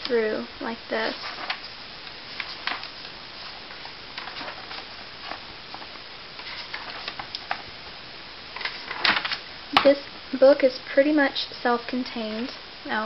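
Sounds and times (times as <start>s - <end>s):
workbook pages flipping: 0.9s - 7.6s, 8.6s - 9.9s.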